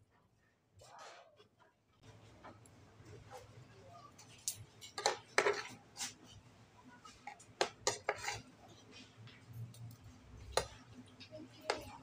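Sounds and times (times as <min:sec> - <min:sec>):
cutlery clinking on a plate: 0:04.4 - 0:05.8.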